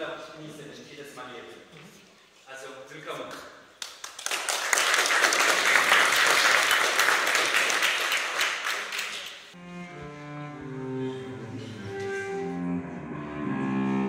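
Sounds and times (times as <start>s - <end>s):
audience applauding: 3.8s - 9.6s
slow music with long held notes: 9.6s - 14.0s.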